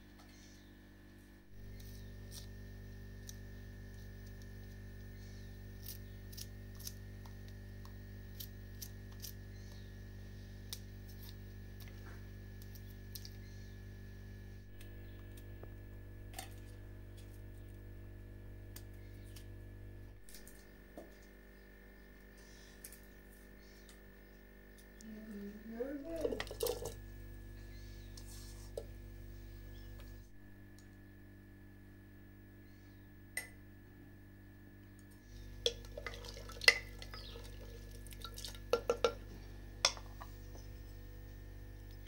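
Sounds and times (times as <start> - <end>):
steady low hum: 0.0 - 42.0
garlic skins crackling: 35.4 - 39.2.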